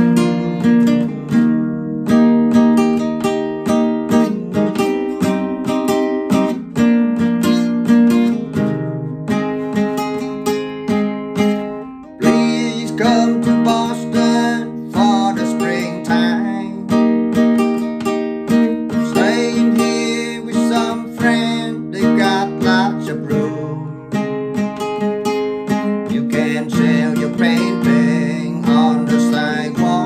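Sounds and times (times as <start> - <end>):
man singing: 0.0 - 3.0, 3.7 - 6.5, 12.1 - 17.6, 18.3 - 24.6, 25.7 - 30.0
classical guitar chords: 0.0 - 30.0.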